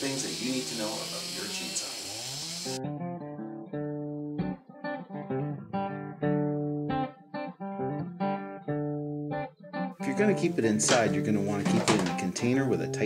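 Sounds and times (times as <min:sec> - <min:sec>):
guitar chords strummed: 0:02.7 - 0:13.0.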